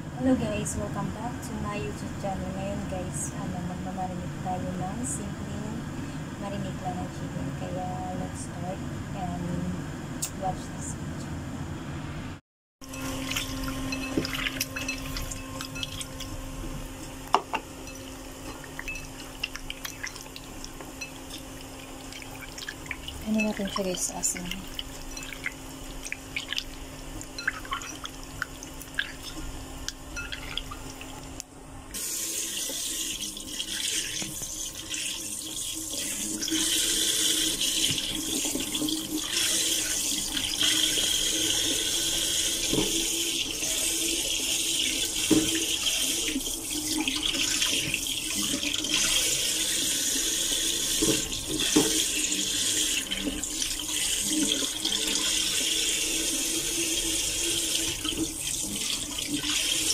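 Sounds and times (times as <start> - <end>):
water splashing into bowl: 12.9 - 16.3, 17.9 - 31.2
tap running into sink: 45.2 - 45.8, 50.8 - 52.3.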